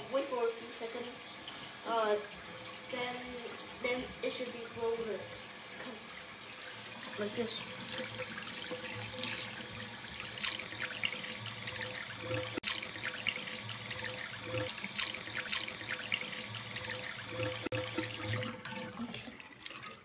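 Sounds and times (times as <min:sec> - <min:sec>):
tap water splashing into sink: 0:07.1 - 0:20.0.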